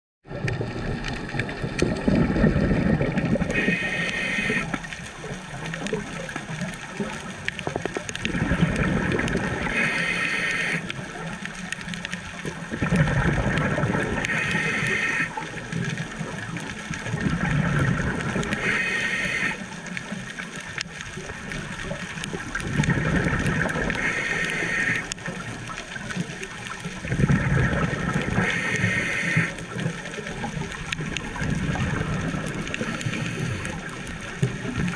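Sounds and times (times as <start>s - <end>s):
regulator bubbling exhalations: 0.3s - 6.3s, 7.8s - 11.3s, 12.7s - 16.4s, 17.0s - 19.7s, 21.9s - 26.2s, 27.0s - 34.9s
regulator hissing inhalations: 3.5s - 4.7s, 9.7s - 10.8s, 18.6s - 19.6s.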